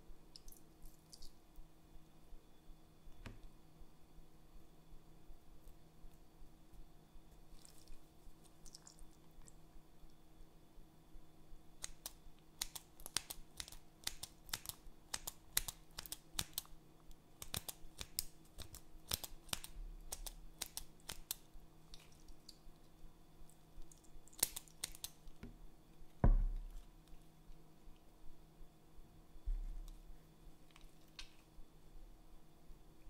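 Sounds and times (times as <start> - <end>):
dull thump: 26.2 - 26.7.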